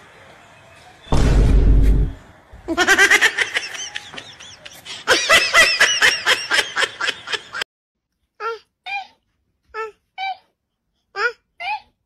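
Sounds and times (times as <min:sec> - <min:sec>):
high-pitched laughter: 0:02.7 - 0:07.6.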